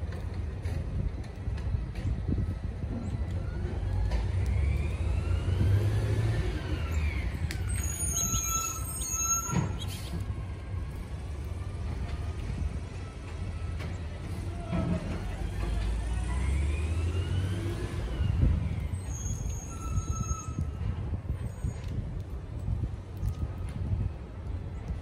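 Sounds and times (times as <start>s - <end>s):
passing vehicle whine: 0.0s - 22.0s
road traffic rumbling: 0.0s - 25.0s
high-pitched squeal: 4.3s - 10.4s, 15.4s - 20.8s.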